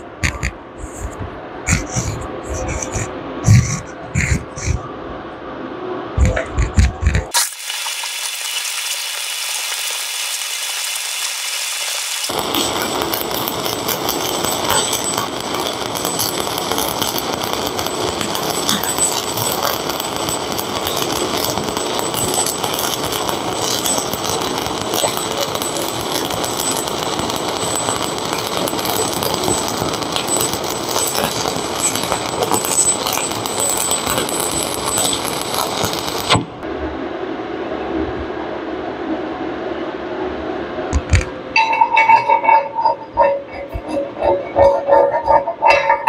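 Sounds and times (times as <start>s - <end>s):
welding arc crackling: 0.2s - 4.8s, 6.2s - 36.6s.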